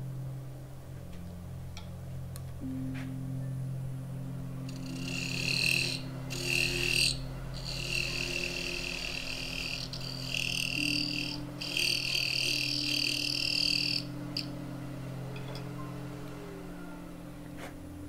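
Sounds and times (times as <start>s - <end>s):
wood lathe humming: 4.4s - 18.0s
parting tool cutting wood: 4.7s - 14.5s.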